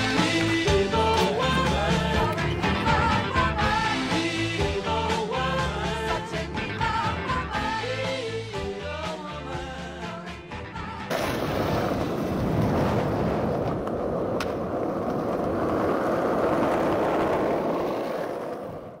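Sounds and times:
skateboard wheels rolling on asphalt: 0.0 - 4.7, 11.2 - 19.0
music: 0.0 - 11.5.

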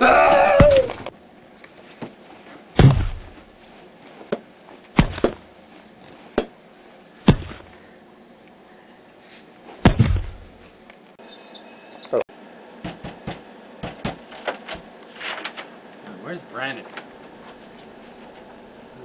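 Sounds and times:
dull thumps: 0.0 - 1.1, 2.8 - 3.6, 4.3 - 5.5, 7.2 - 7.8, 9.8 - 10.7.

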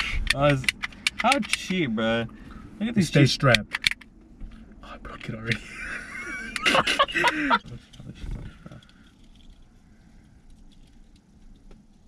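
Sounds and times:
faint low rumble: 0.0 - 12.0
men laughing loudly: 5.6 - 7.8.

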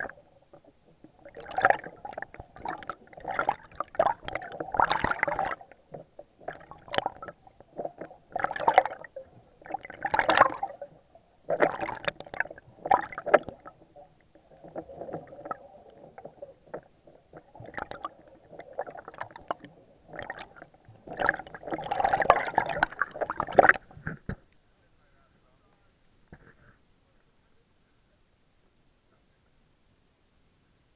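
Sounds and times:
underwater bubbling water: 0.0 - 24.6.

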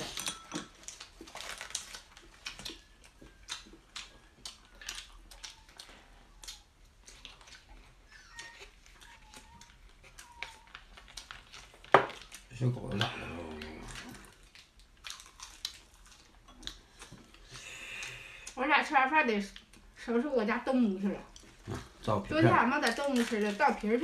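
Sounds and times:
puppy whining: 2.3 - 11.4.

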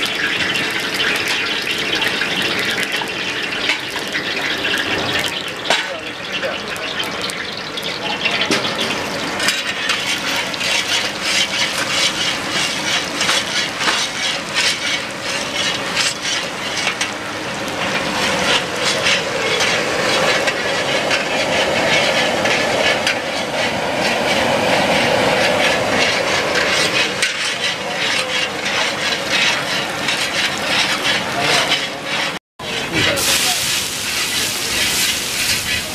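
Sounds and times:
garlic sizzling in hot oil: 0.0 - 35.9
metal spatula scraping pan: 8.2 - 35.9.

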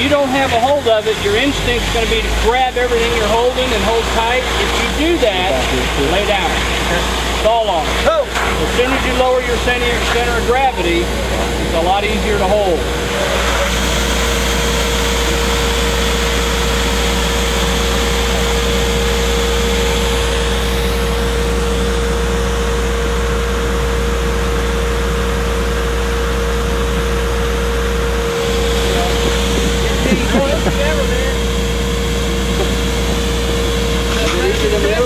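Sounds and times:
fire engine pump running: 0.0 - 35.0
water rushing from hose nozzle: 0.1 - 10.9, 13.0 - 21.7.

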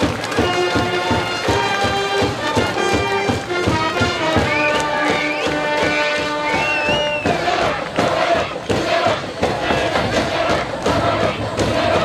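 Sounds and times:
brass band playing cheer song: 0.0 - 12.0
steady drum beat: 0.0 - 12.0.

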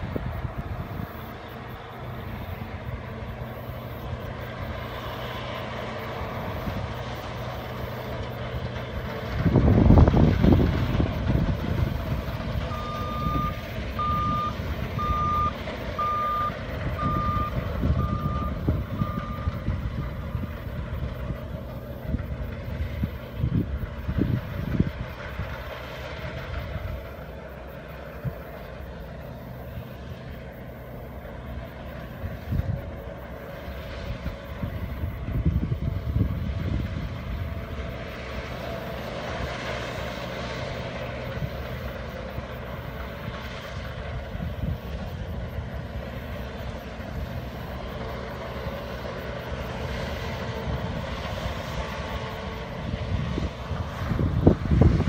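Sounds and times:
combine harvester engine hum: 0.0 - 55.0
reversing alarm beeps: 11.9 - 20.6.

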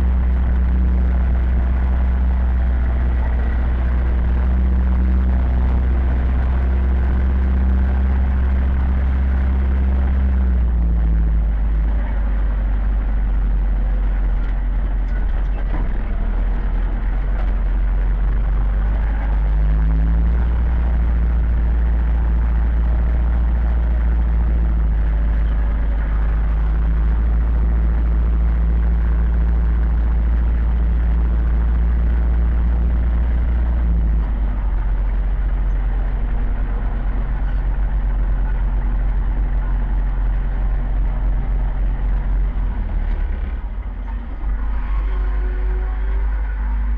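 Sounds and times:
tractor diesel engine running: 0.0 - 46.9.

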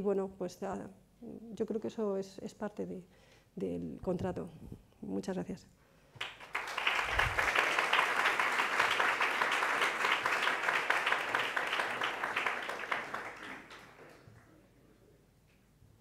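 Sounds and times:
audience applauding: 6.2 - 14.5.

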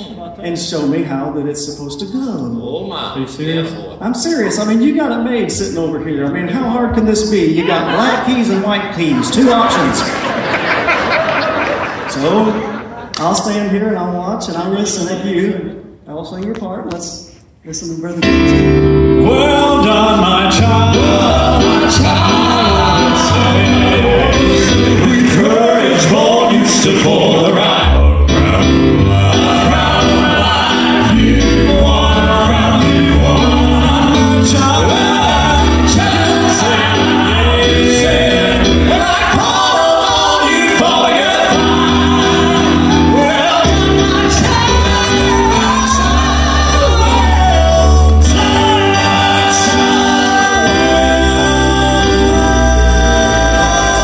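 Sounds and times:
male quartet singing in harmony: 6.6 - 13.0, 19.0 - 54.0
piano accompaniment: 18.2 - 54.0.

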